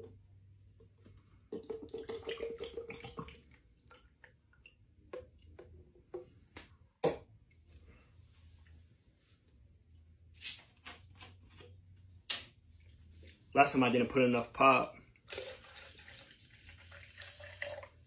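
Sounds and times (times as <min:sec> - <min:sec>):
liquid glugging into a cup: 0:01.5 - 0:06.2.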